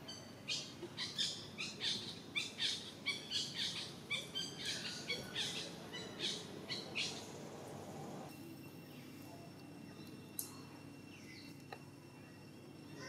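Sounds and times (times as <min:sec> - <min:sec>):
high-pitched chirping calls: 0:00.0 - 0:07.3.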